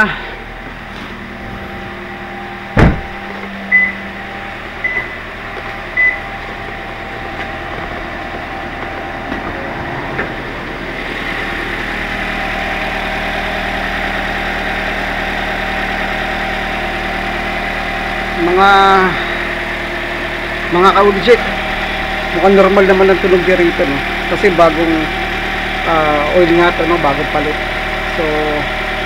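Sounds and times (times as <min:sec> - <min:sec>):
car engine idling: 0:00.0 - 0:29.0
car door shutting: 0:00.9 - 0:06.2
short high beeps: 0:03.7 - 0:04.0, 0:06.0 - 0:06.2.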